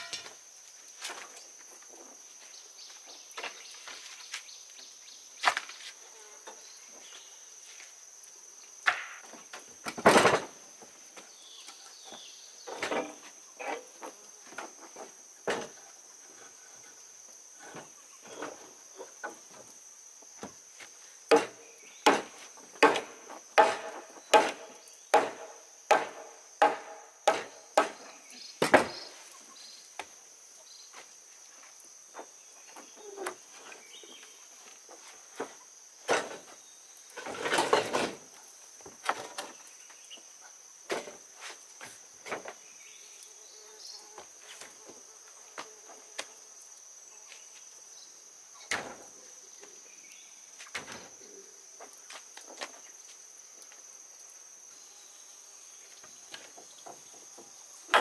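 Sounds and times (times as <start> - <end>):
high insect buzz: 0.0 - 58.0
hand tool striking wood: 21.3 - 29.0.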